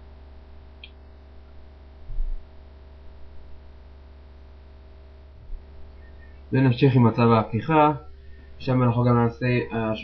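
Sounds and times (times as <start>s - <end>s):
electrical mains hum: 0.0s - 10.0s
dull low thump: 2.0s - 2.5s.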